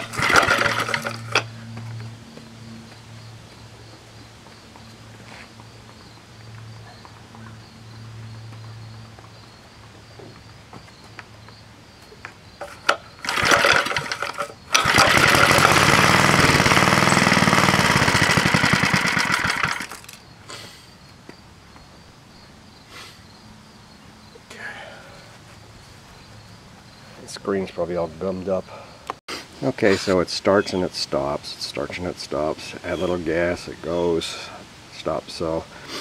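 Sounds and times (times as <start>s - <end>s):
small engine starting and running: 0.0s - 2.0s, 12.6s - 20.2s.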